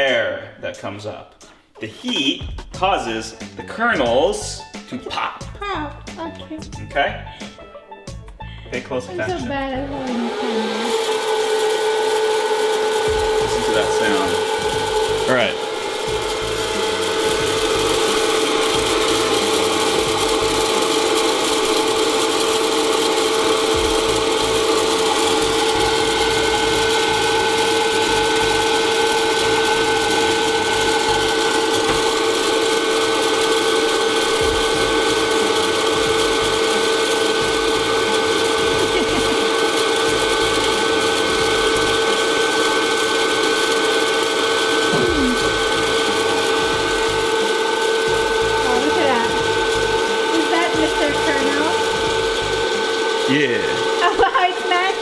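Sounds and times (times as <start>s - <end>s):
popcorn popper fan whine: 2.8s - 55.0s.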